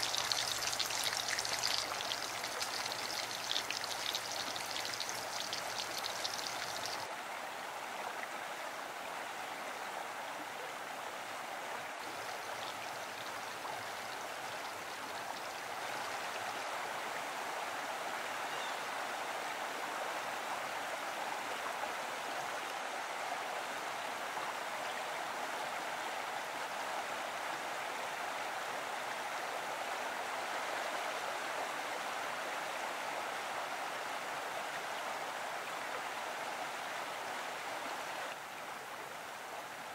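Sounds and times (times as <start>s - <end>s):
food sizzling in oil: 0.0s - 7.0s
stream running: 0.0s - 39.9s.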